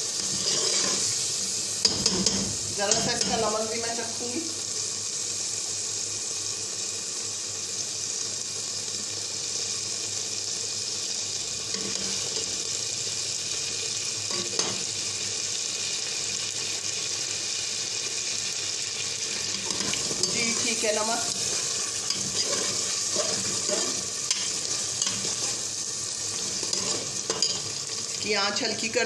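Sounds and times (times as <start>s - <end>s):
meat sizzling in oil: 0.0s - 29.0s
spoon clinking against pot: 26.7s - 27.7s.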